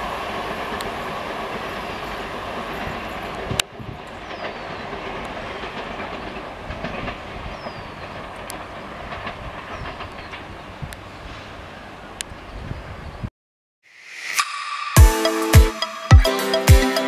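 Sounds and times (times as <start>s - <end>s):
train wheels clacking on rails: 0.0s - 11.5s
train rumble: 0.0s - 13.3s.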